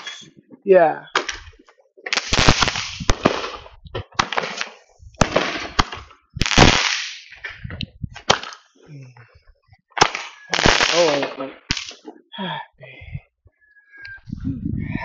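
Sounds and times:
fireworks popping and hissing: 0:01.2 - 0:08.9, 0:09.9 - 0:12.2.

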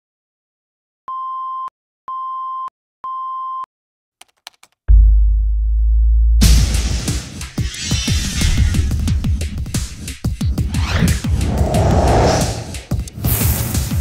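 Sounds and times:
keystroke clicks: 0:04.2 - 0:04.8
deep bass drone: 0:04.9 - 0:07.0.

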